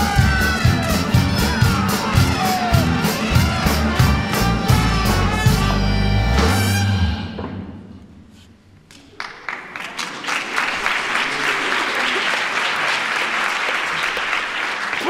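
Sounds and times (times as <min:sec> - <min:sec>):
audience applause: 0:00.0 - 0:05.2, 0:09.0 - 0:15.0.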